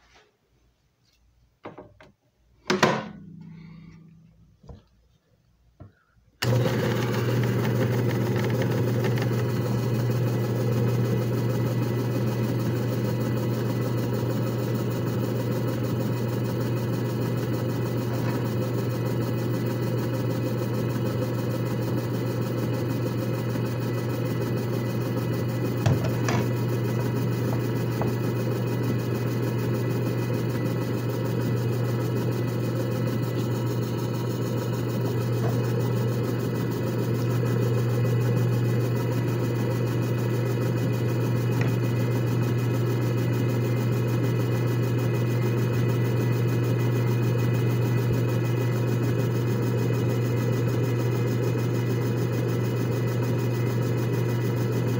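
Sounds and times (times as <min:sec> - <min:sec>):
machine motor humming: 0:06.4 - 0:53.3.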